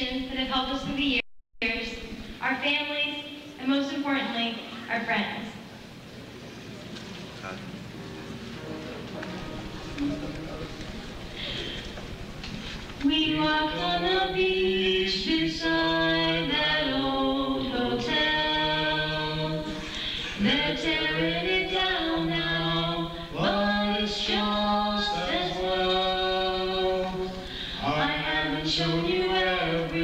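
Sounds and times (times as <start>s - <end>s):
man and woman singing duet: 13.0s - 30.0s.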